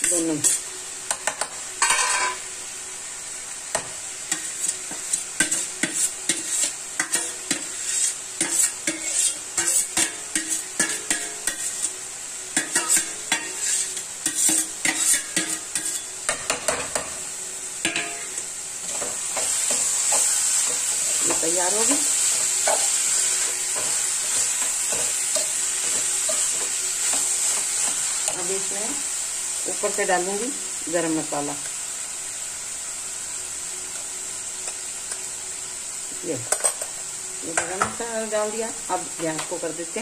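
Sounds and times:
vegetables sizzling: 0.0 - 40.0
spatula scraping metal pan: 4.3 - 12.0, 12.6 - 16.1.

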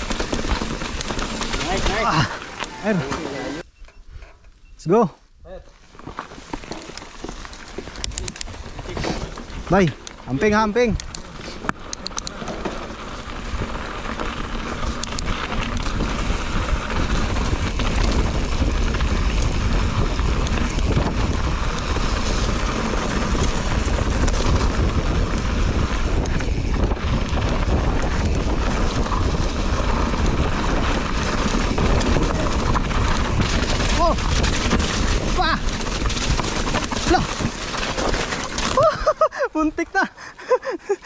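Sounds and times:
bike tyres rolling on dirt: 0.0 - 41.0
wind buffeting microphone: 13.4 - 38.2.

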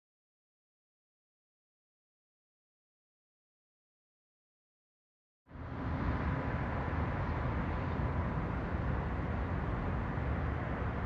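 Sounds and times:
low outdoor rumble: 5.5 - 11.0.

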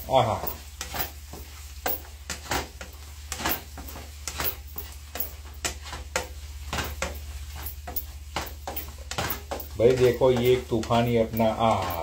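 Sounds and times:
spatula scraping cooking pan: 0.0 - 12.0.

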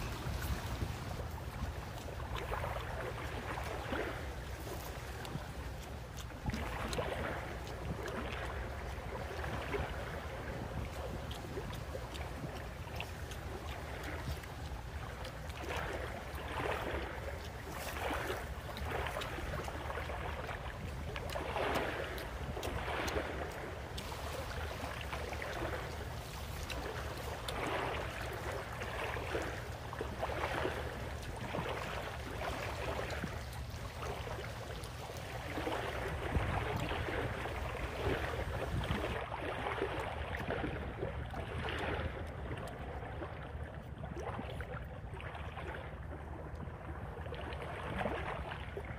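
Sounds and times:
wind buffeting microphone: 0.0 - 28.5, 29.2 - 39.3.

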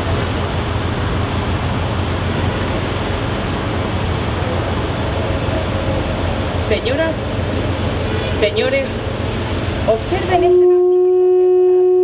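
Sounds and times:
city traffic rumble: 0.0 - 11.6.

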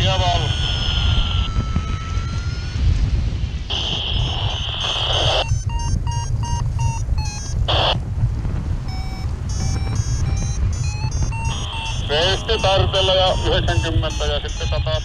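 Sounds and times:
wind rushing over microphone: 0.0 - 15.0
variometer short beeps: 4.8 - 8.0, 8.9 - 15.0.

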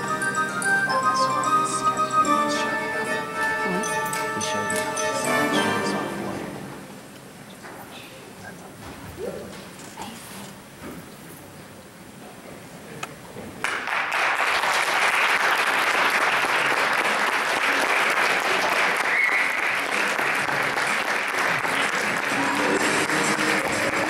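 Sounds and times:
audience applauding: 13.6 - 24.0.

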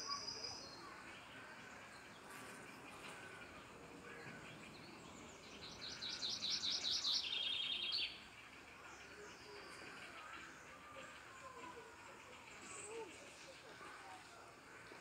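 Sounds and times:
songbird trilling song: 0.0 - 11.4
faint outdoor background noise: 0.0 - 15.0.

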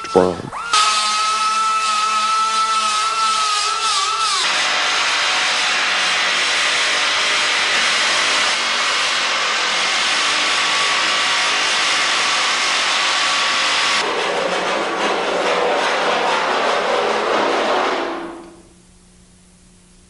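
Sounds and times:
belt grinder grinding metal: 0.1 - 14.1.

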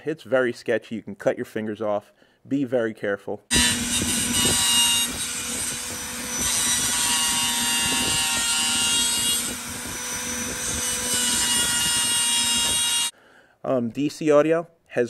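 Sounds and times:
power grinder cutting metal: 3.5 - 13.1.

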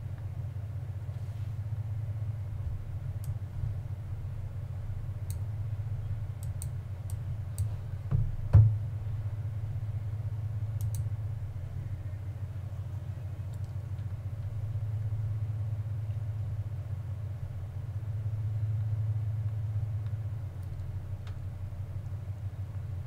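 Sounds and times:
steady low hum: 0.0 - 23.0
light clicks: 3.2 - 3.4, 5.2 - 5.5, 6.4 - 7.8, 10.8 - 11.1, 13.4 - 15.1, 18.8 - 21.5.

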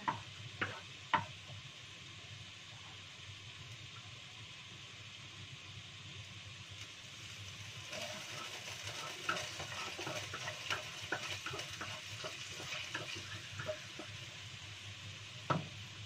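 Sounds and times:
food sizzling in hot oil: 0.0 - 16.0
spatula scraping a pan: 7.9 - 14.3.

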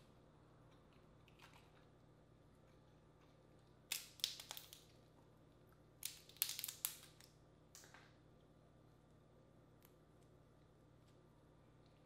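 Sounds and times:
crawfish shells cracking: 3.9 - 5.0, 6.0 - 7.9.

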